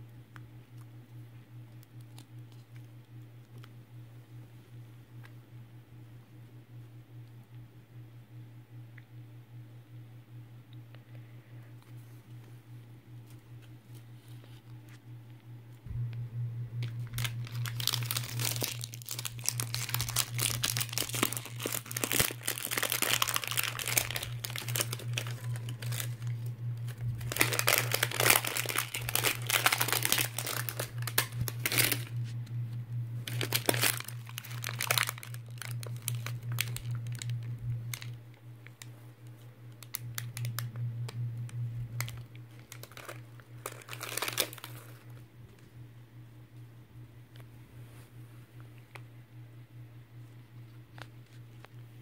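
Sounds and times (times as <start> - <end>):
low hum: 0.0 - 52.0
plastic tearing: 16.8 - 32.3, 33.2 - 38.9, 39.8 - 40.7, 41.9 - 45.2
plastic packaging crinkling: 16.8 - 32.4, 33.2 - 45.2.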